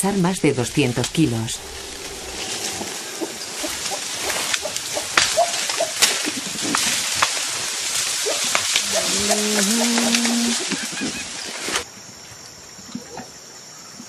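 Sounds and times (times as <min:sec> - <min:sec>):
vegetation rustling: 0:00.1 - 0:11.9
low held animal call: 0:01.6 - 0:06.0, 0:08.8 - 0:11.3
twigs snapping: 0:01.7 - 0:10.6.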